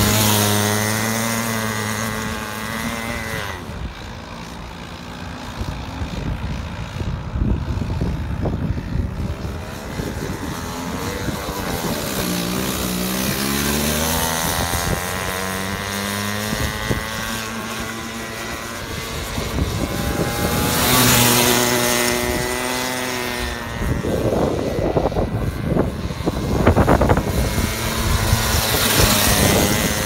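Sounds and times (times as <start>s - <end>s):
go-kart engine passing by: 0.0s - 30.0s.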